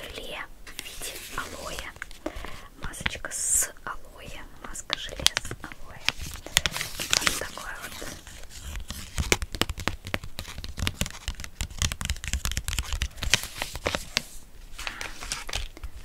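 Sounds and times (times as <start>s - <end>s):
foil packet crinkling: 5.0s - 16.0s.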